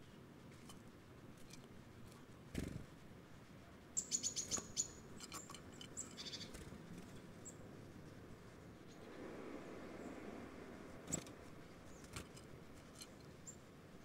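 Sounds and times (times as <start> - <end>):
songbird high thin calls: 4.0 - 5.0, 6.0 - 6.5.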